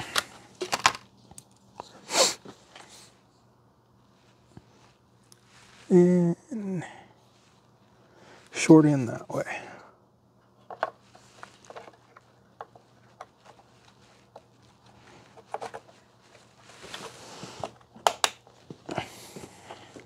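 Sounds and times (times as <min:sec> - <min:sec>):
hands clicking and tapping computer parts: 0:17.8 - 0:18.4.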